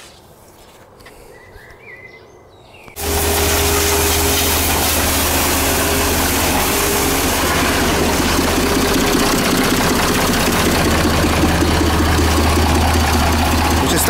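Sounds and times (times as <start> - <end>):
engine droning with hiss: 3.0 - 14.0.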